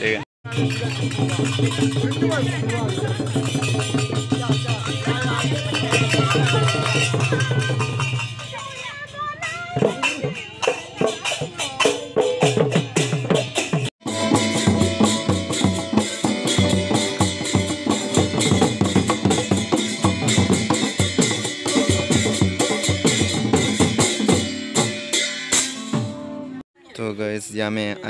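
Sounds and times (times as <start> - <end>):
hand drums playing: 0.5 - 26.6
acoustic guitar playing: 14.0 - 26.6.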